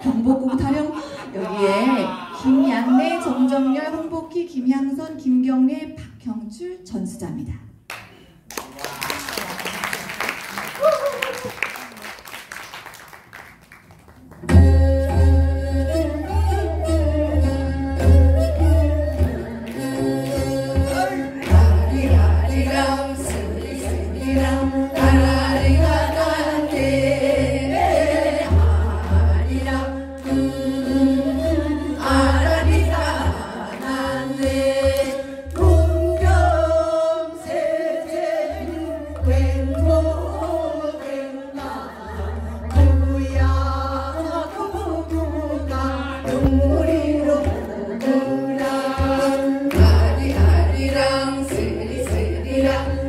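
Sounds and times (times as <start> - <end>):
women singing into microphones: 14.5 - 53.0.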